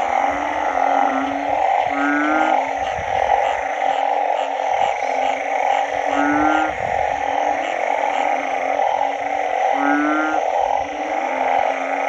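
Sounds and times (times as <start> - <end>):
frog chorus pulsing: 0.0 - 12.0
frog giving short low calls: 0.0 - 12.0.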